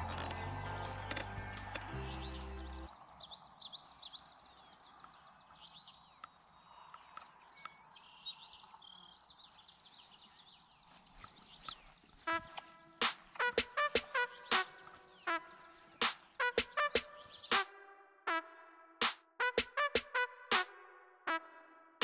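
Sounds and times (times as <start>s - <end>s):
background music: 0.0s - 2.9s, 12.3s - 22.0s
birds chirping: 0.0s - 17.8s
bird trill: 11.2s - 17.6s.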